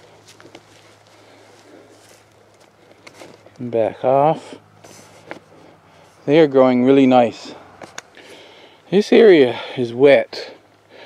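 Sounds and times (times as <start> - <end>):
footsteps through dry grass: 0.0 - 6.6.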